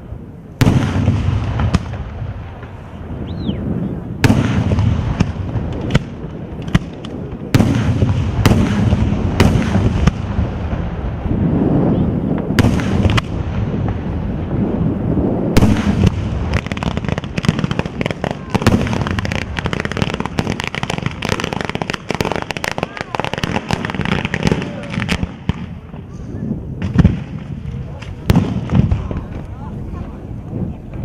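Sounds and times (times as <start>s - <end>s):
fireworks bangs: 0.0s - 31.0s
firework whistle: 3.2s - 4.0s.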